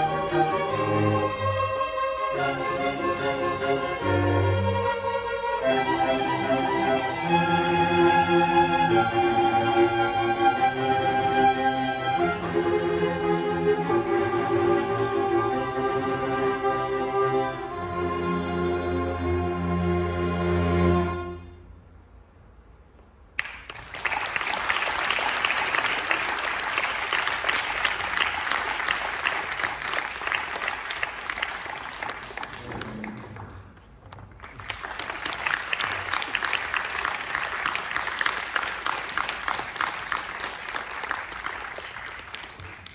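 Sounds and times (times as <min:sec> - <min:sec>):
string orchestra chord: 0:00.0 - 0:21.8
audience applause: 0:23.4 - 0:42.9.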